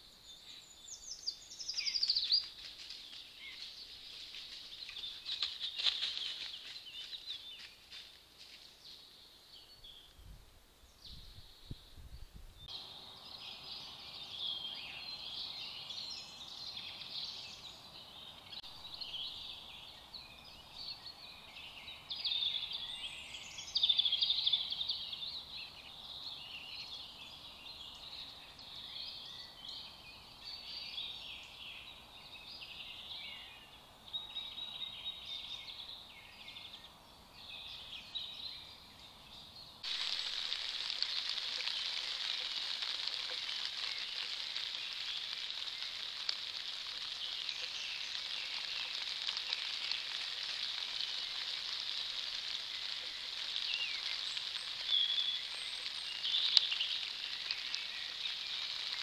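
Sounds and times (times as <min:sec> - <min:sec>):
woodland birds singing: 0:00.0 - 0:59.0.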